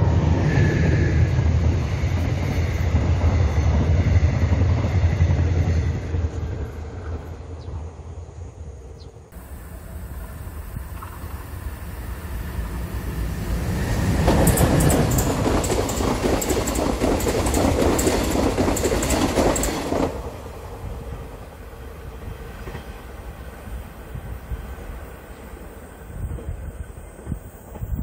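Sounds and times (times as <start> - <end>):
train rumble: 0.0 - 28.0
train wheels clattering: 13.3 - 20.3.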